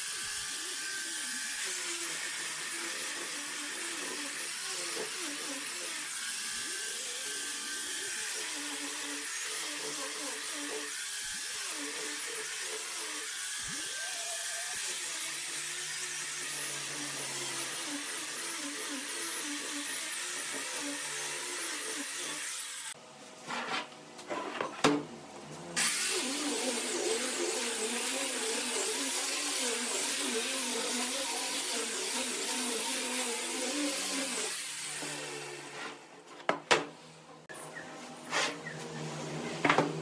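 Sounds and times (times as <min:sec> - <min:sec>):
electric power tool running: 0:00.0 - 0:23.0, 0:25.8 - 0:35.8.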